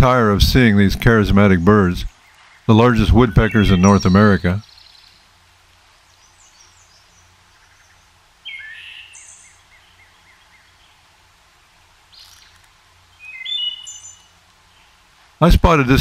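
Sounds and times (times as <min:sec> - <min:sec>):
songbirds calling: 0:00.0 - 0:16.0.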